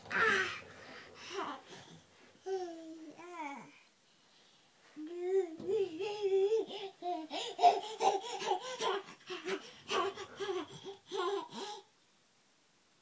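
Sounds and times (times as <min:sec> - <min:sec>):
toddler babbling and laughing: 0:01.3 - 0:03.8, 0:05.0 - 0:11.9.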